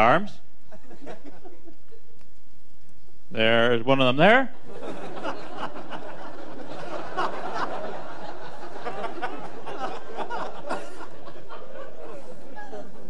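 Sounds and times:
audience laughing: 0.7s - 2.0s, 4.6s - 13.0s.

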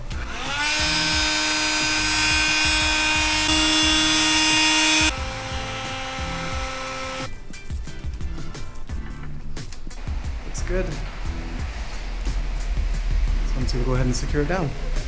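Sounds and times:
heat gun fan whine: 0.0s - 7.3s.

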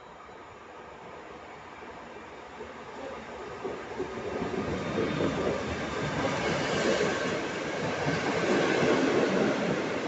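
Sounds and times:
train wheels rumbling on rails: 3.1s - 10.0s.

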